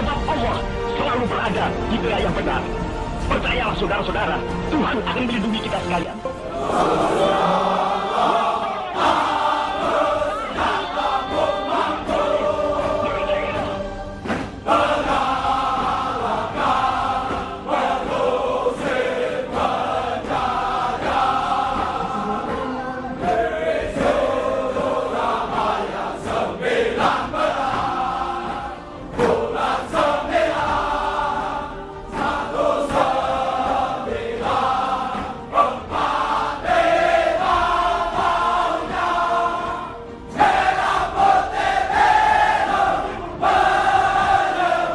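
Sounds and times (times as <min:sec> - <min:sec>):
background music: 0:00.0 - 0:44.9
choir singing a slow song: 0:06.4 - 0:44.9.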